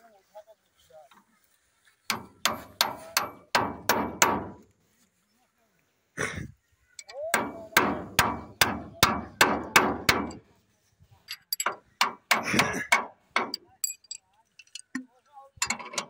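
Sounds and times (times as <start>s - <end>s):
hammer striking metal: 7.3s - 10.4s
light metal clinks: 11.2s - 11.8s, 13.4s - 16.0s.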